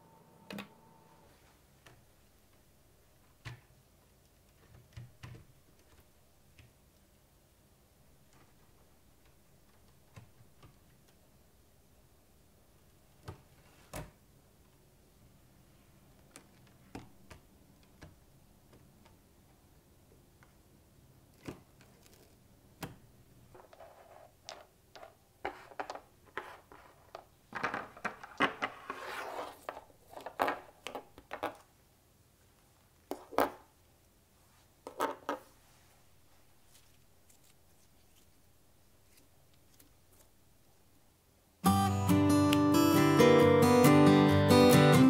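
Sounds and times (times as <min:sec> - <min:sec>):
scratchy rubbing: 0:23.6 - 0:24.4, 0:28.7 - 0:29.8.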